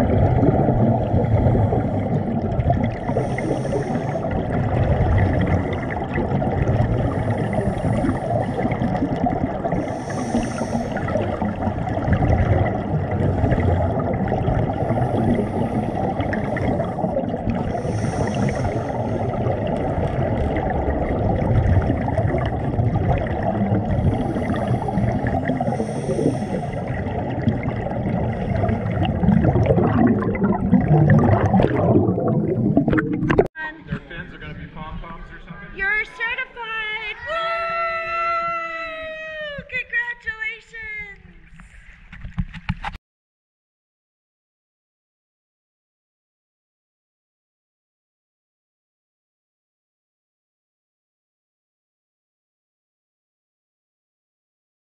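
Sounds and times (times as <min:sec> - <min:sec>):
regulator exhaust bubbles: 0:00.0 - 0:33.5
muffled underwater rumble: 0:00.0 - 0:35.6.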